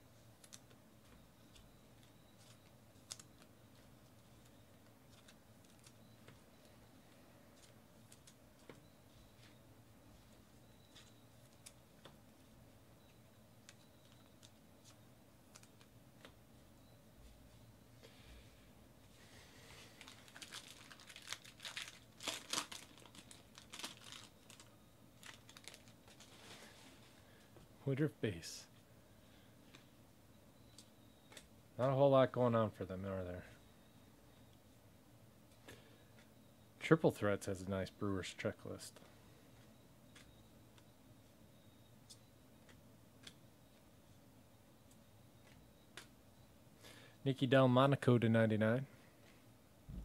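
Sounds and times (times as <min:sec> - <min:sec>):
foil wrapper crinkling: 0:19.9 - 0:26.6.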